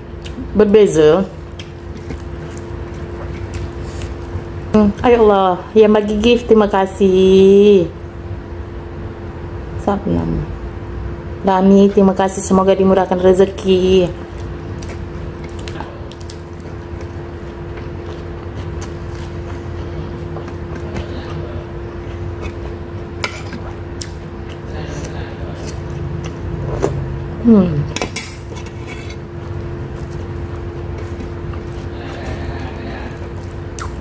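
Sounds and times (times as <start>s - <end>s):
steady hum: 0.0s - 34.0s
spoon scraping a plate: 22.3s - 23.7s, 28.0s - 29.3s.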